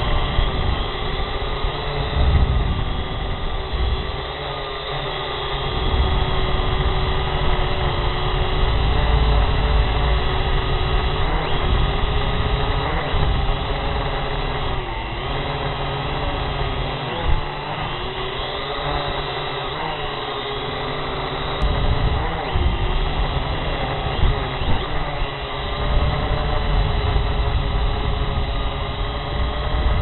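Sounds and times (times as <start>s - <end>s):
drone motors whining: 0.0s - 30.0s
heavy low rumble: 21.3s - 30.0s.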